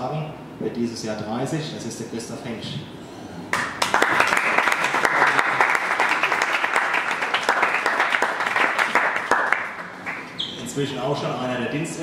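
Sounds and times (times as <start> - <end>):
audience applauding: 3.5 - 10.3.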